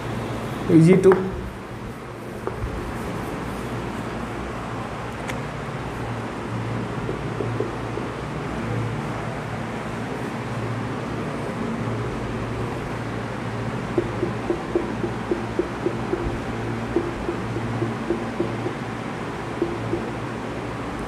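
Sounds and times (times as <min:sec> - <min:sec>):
room hum and hiss: 0:00.0 - 0:21.0
marker hatching strokes: 0:13.9 - 0:18.9, 0:19.6 - 0:20.2
marker squeaking on whiteboard: 0:14.0 - 0:18.9.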